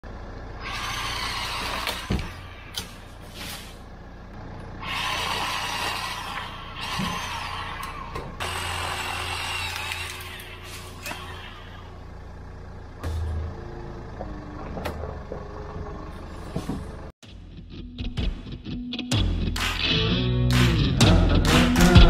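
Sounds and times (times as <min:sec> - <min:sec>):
electric chainsaw motor whining: 0:00.5 - 0:03.1, 0:04.7 - 0:12.1
sharp cracks of tree limbs: 0:09.2 - 0:11.3.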